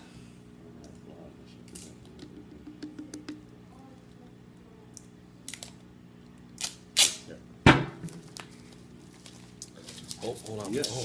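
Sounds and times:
duct tape ripping off roll: 0:06.6 - 0:07.3.

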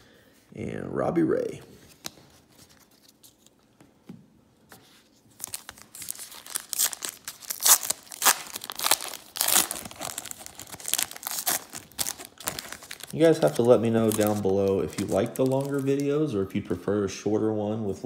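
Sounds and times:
foil wrapper tearing and crinkling: 0:05.4 - 0:16.1.

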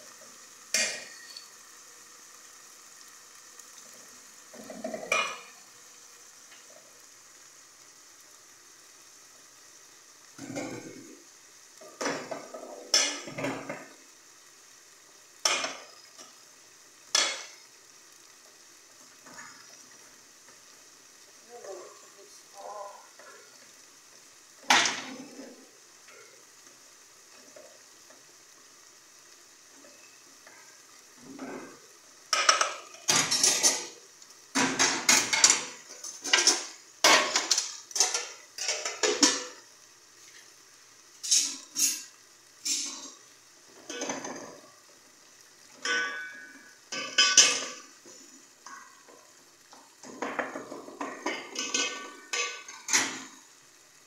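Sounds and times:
pots and spoons clattering: 0:00.7 - 0:01.5, 0:04.5 - 0:05.6, 0:10.4 - 0:11.1, 0:11.8 - 0:13.9, 0:15.4 - 0:16.3, 0:17.1 - 0:17.6, 0:31.2 - 0:39.6, 0:41.2 - 0:43.2, 0:43.8 - 0:44.7, 0:45.7 - 0:49.2, 0:50.0 - 0:53.4.

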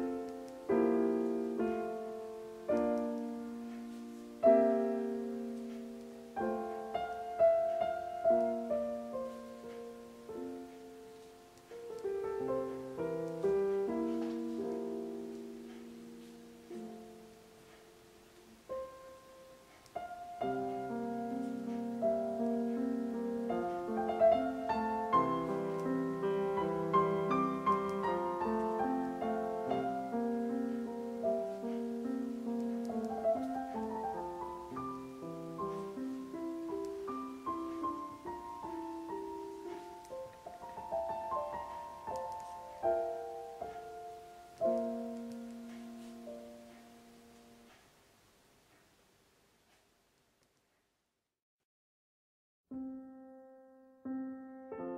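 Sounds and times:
solo piano music: 0:00.0 - 0:48.5, 0:52.7 - 0:54.9.

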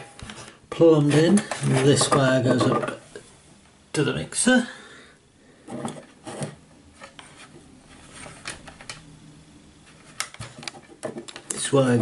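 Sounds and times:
audio cables rustling and scraping: 0:00.0 - 0:03.4, 0:05.6 - 0:09.0, 0:09.7 - 0:12.0.

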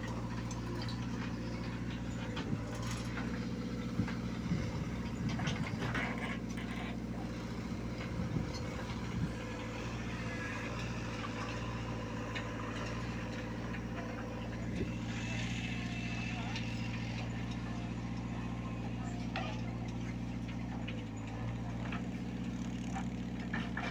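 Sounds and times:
diesel engine idling: 0:00.0 - 0:23.9.

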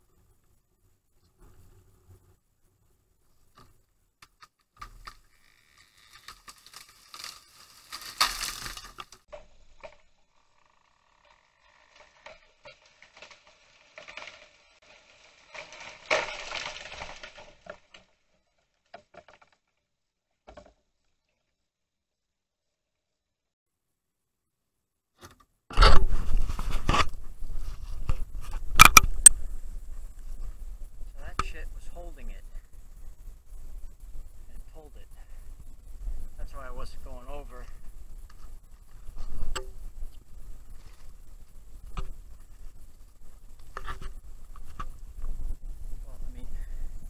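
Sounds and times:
twigs snapping: 0:03.6 - 0:10.0, 0:11.9 - 0:18.1
rustling and crunching in dry brush: 0:05.2 - 0:09.8, 0:11.7 - 0:18.6, 0:26.0 - 0:47.0
footsteps crunching through leaves: 0:06.6 - 0:09.2.

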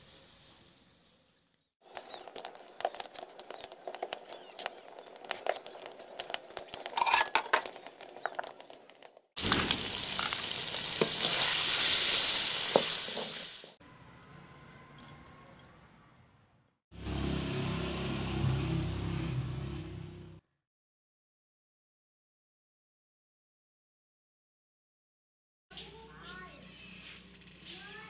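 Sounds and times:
chicken sizzling in a pan: 0:00.0 - 0:01.2, 0:01.8 - 0:08.7, 0:09.4 - 0:13.8
wood fire crackling: 0:01.8 - 0:13.8.

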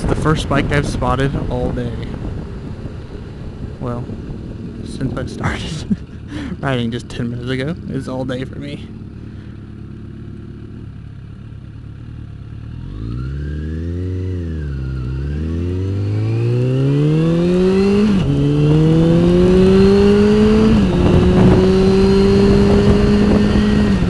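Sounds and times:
wind noise: 0:00.0 - 0:07.4, 0:16.0 - 0:24.0
motorcycle engine revving: 0:00.0 - 0:24.0.

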